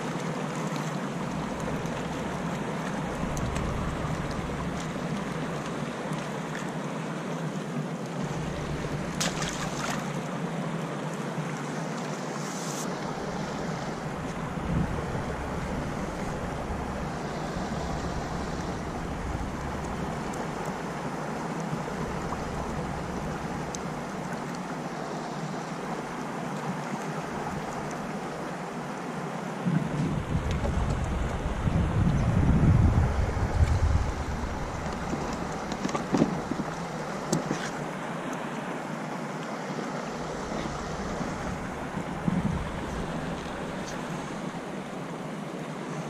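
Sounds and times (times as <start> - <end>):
river water washing on stones: 0.0 - 46.0
wind buffeting microphone: 1.3 - 5.8, 13.2 - 21.2, 29.6 - 37.6, 40.2 - 44.6.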